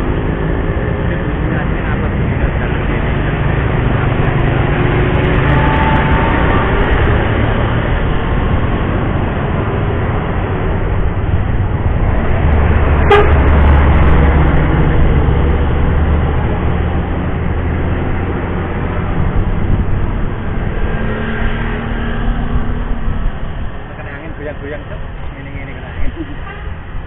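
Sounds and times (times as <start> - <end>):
diesel bus rumbling past: 0.0 - 27.0
motorcycles passing: 0.0 - 27.0
horn toot: 13.0 - 13.6.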